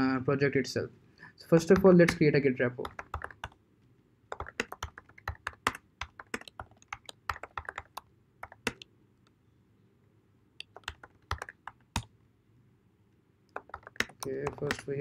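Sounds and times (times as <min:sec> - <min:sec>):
keyboard key clicks: 0:04.4 - 0:08.8.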